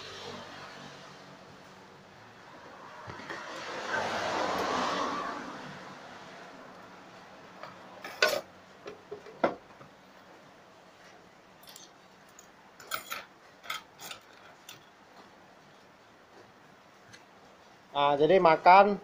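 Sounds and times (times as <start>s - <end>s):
cutlery clinking on a plate: 8.0s - 8.5s.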